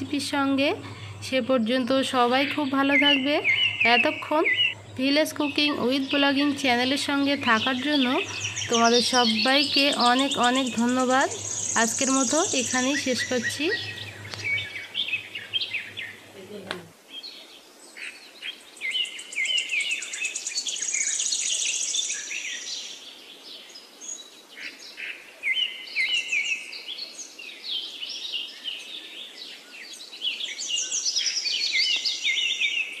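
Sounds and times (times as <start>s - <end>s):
small birds chirping: 0.0s - 33.0s
rapid high bird notes: 2.1s - 16.3s.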